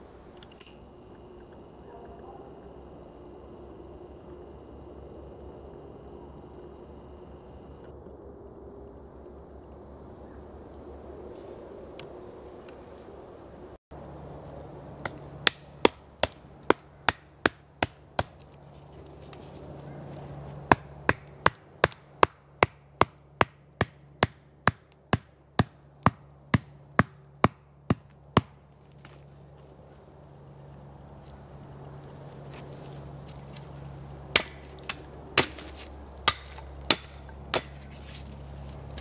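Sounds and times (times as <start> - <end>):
hatchet striking wooden stake: 15.0 - 18.5, 20.7 - 29.2, 34.3 - 38.1.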